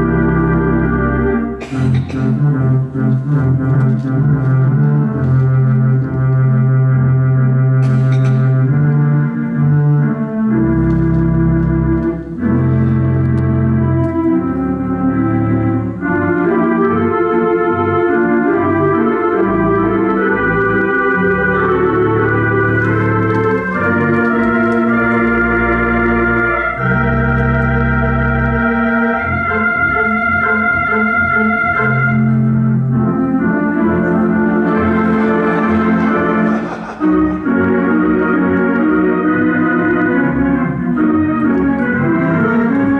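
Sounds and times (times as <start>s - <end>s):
deep organ bass notes: 0.0s - 42.9s
theatre organ chords: 0.0s - 42.9s.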